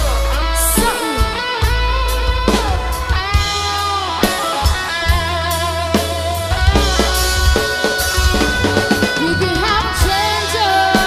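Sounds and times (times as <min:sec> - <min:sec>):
rock band playing: 0:00.0 - 0:11.0
wavering lead guitar: 0:00.0 - 0:11.0.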